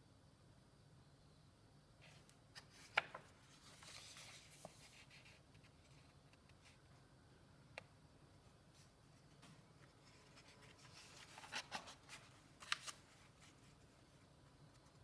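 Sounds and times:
paper page rustling: 2.0s - 6.8s, 9.8s - 13.9s.

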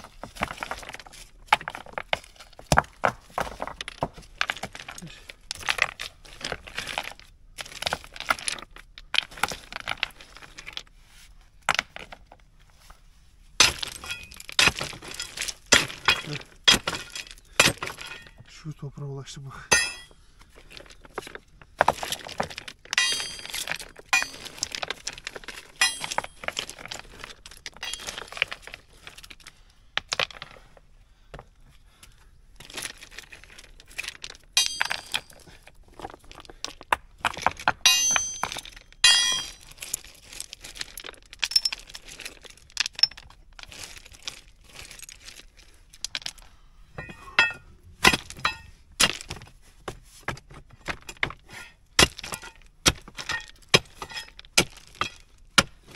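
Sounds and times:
stones clinking and knocking: 0.0s - 12.8s, 13.5s - 18.5s, 19.7s - 55.9s
gravel scraping: 0.0s - 30.8s, 51.4s - 55.2s.

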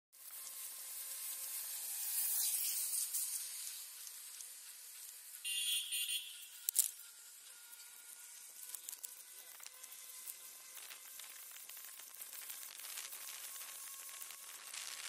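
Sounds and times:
short buzzing tone: 5.3s - 8.6s.

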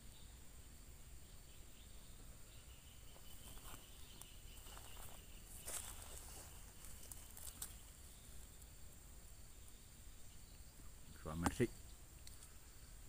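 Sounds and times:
high insect buzz: 0.0s - 13.0s
rustling in dry grass: 3.1s - 8.8s.

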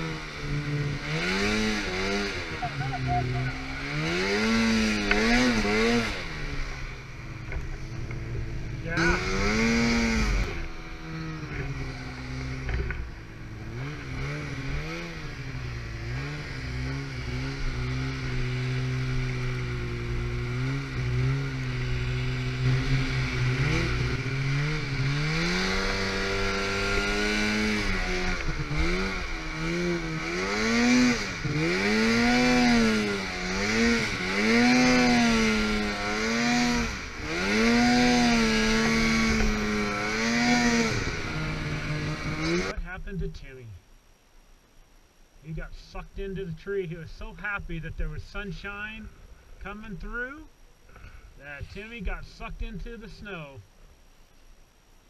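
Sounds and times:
snowmobile engine revving: 0.0s - 43.5s.

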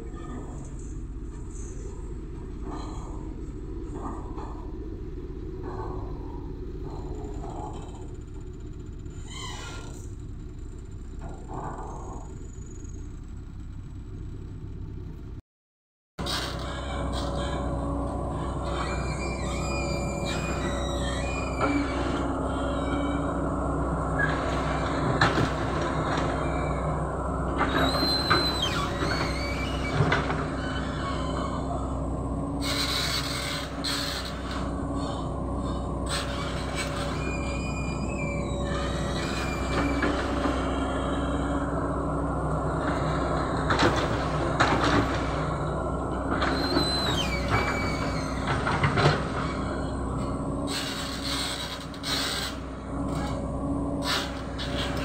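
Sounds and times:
excavator diesel engine running: 0.0s - 15.4s, 16.2s - 55.0s
high squeal: 6.0s - 10.2s, 16.2s - 55.0s.

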